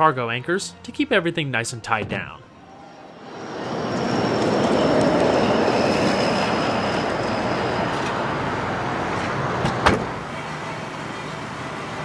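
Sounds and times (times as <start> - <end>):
vehicle passing close by: 2.6 - 10.2.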